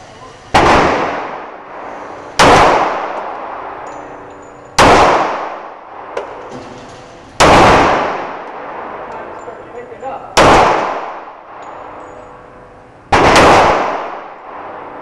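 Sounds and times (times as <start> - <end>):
pistol shots echoing indoors: 0.5 - 1.8, 2.4 - 4.2, 4.8 - 6.5, 7.4 - 9.2, 10.3 - 12.2, 13.1 - 15.0.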